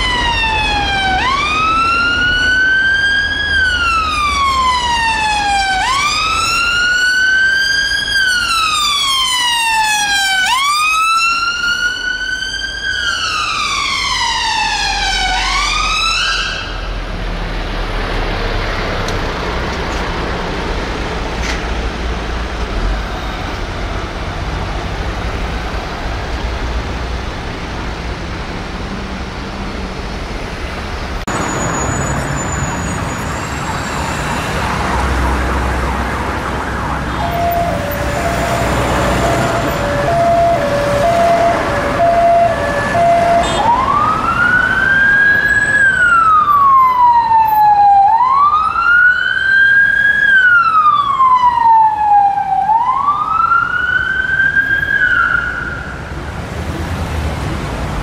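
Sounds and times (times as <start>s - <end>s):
ambulance siren wailing: 0.0s - 17.0s, 31.3s - 56.2s
traffic noise: 0.0s - 58.0s.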